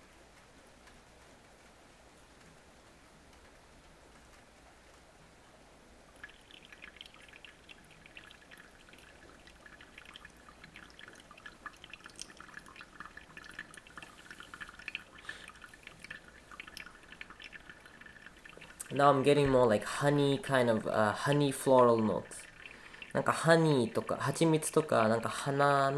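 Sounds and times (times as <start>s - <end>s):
crackling patter of drips: 0.0s - 25.9s
water trickling onto coffee: 6.1s - 25.9s.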